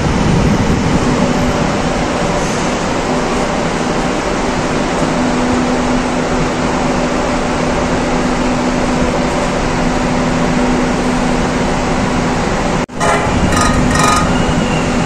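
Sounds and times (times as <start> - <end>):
fan hum: 12.2 - 15.0.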